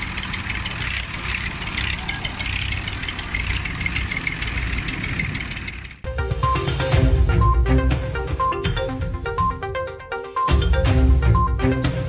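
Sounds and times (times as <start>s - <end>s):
low engine rumble: 0.0s - 9.8s.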